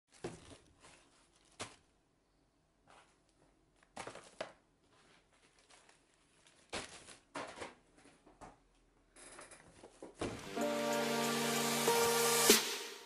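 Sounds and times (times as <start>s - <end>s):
plastic bags crinkling: 0.1s - 2.0s, 3.7s - 8.0s.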